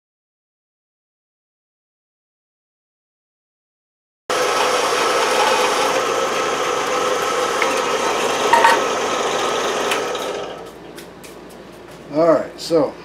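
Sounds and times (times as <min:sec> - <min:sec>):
band saw cutting plastic: 0:04.3 - 0:10.8.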